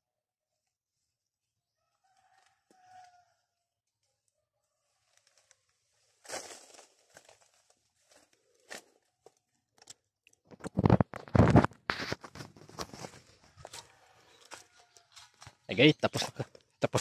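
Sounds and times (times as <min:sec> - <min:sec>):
leaves and twigs crackling: 0:05.0 - 0:09.4, 0:12.2 - 0:17.0.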